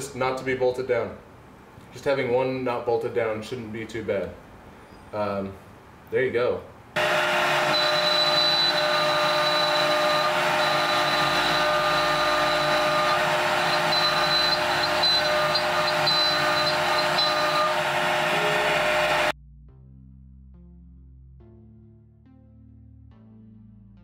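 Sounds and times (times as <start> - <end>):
router spindle whining: 7.0 - 19.3.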